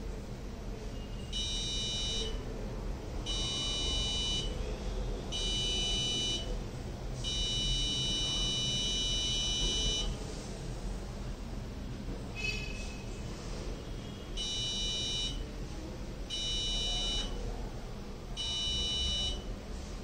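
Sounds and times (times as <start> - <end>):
electronic buzzer beeping: 1.3 - 2.4, 3.3 - 4.5, 5.3 - 6.5, 7.3 - 10.1, 14.4 - 15.4, 16.3 - 17.4, 18.4 - 19.5.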